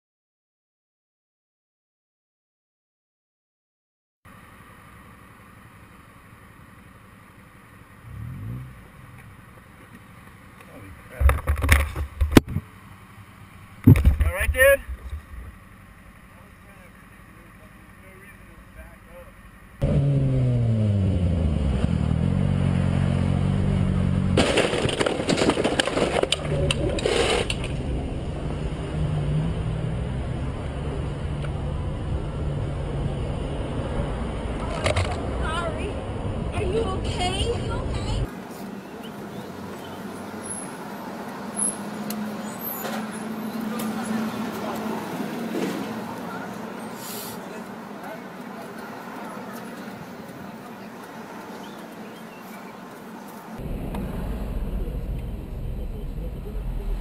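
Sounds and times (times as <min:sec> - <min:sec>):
engine revving: 0:08.0 - 0:09.3, 0:19.8 - 0:24.7, 0:26.1 - 0:36.8, 0:53.6 - 0:57.0
motorcycle crash impact: 0:24.2 - 0:27.9
scraping and clattering: 0:24.4 - 0:27.8
low engine hum: 0:26.2 - 0:57.0.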